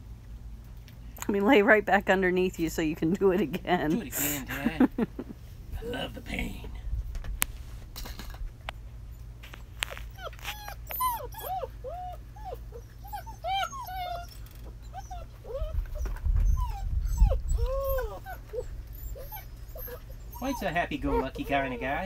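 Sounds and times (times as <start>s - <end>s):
low rumble: 4.9s - 9.1s
puppies whimpering and yipping: 9.1s - 22.0s.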